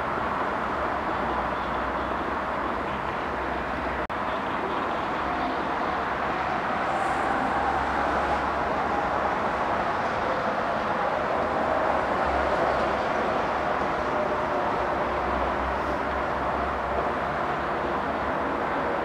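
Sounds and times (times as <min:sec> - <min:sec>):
jet engine rushing with whine: 0:04.8 - 0:19.0.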